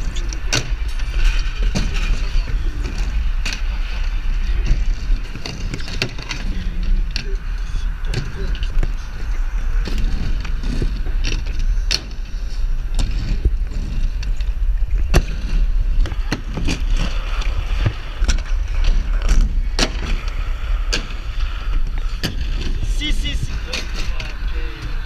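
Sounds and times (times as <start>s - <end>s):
skate wheels rolling on concrete: 0.0s - 25.0s
wind on microphone: 0.0s - 25.0s.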